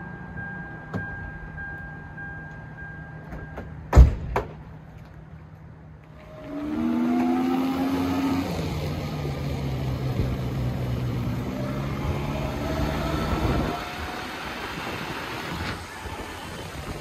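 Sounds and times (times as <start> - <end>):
vehicle engine humming: 4.8 - 17.0
noisy rush: 10.1 - 17.0.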